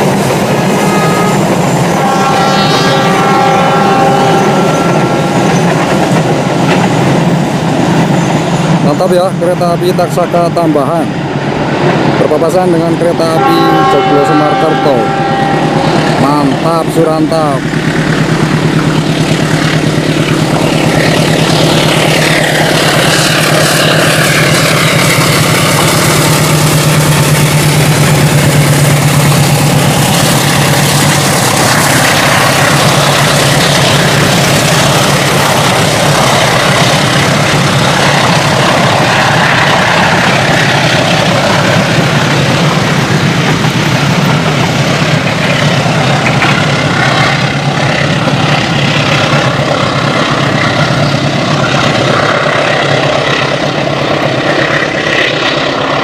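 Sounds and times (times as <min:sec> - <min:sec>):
train wheels clattering on rails: 0:00.0 - 0:02.4, 0:03.0 - 0:13.4, 0:15.5 - 0:56.0
locomotive engine hum: 0:00.0 - 0:56.0.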